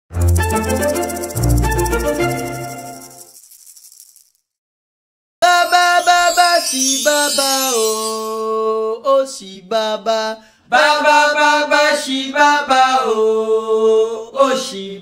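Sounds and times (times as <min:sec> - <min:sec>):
chanting voice singing held notes: 0:05.4 - 0:15.0.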